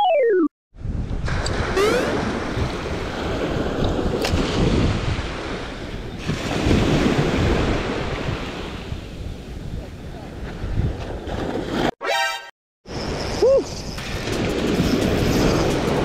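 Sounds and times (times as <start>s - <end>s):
wind buffeting microphone: 0.8s - 11.8s.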